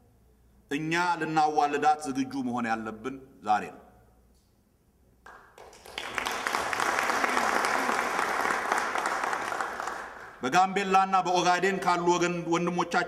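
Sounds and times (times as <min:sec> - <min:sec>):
audience applauding: 0:05.3 - 0:10.4.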